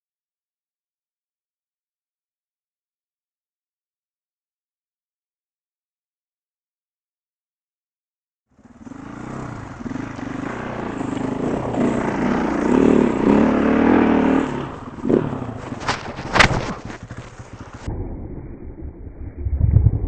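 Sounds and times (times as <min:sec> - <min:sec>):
dirt bike engine under throttle: 0:08.5 - 0:17.9.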